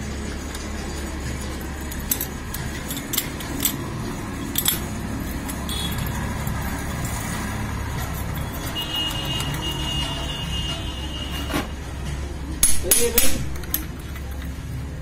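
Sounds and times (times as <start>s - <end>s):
metallic clinks of steel parts: 0.4s - 7.2s.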